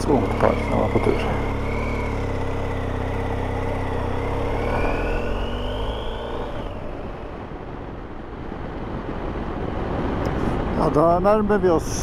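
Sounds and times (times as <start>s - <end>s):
motorcycle engine accelerating: 0.0s - 8.5s
rushing wind noise: 0.0s - 12.0s.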